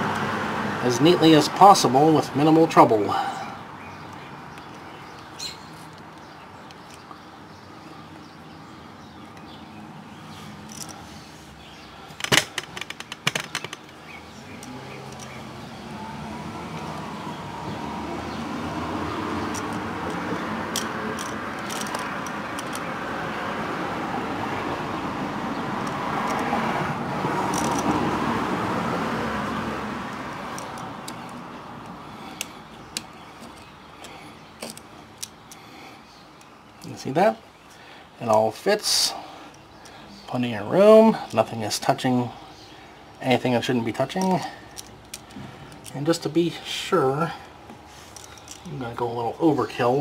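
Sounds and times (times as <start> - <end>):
passing road vehicle: 0.0 - 6.2, 7.8 - 36.6.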